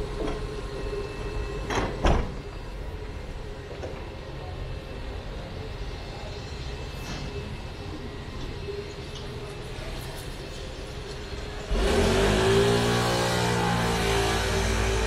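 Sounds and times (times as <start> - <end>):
low street noise: 0.0 - 15.0
vehicle engine accelerating: 11.6 - 15.0.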